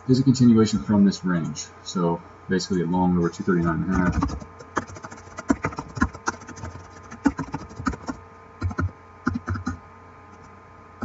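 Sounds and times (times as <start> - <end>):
typing on computer keyboard: 3.9 - 9.6.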